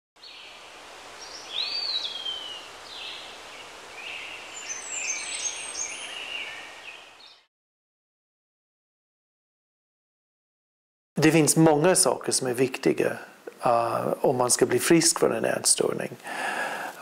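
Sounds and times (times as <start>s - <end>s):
birds chirping: 0.2s - 7.5s
outdoor ambient hiss: 0.2s - 7.5s, 11.2s - 17.0s.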